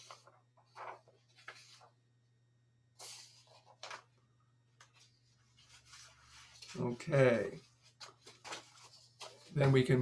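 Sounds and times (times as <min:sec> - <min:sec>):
soft rustles: 0:04.8 - 0:10.0.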